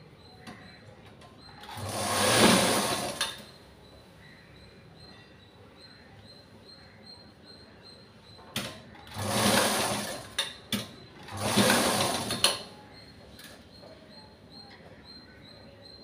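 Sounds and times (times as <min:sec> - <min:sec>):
sewing machine stitching: 0:01.6 - 0:03.6, 0:08.6 - 0:12.7.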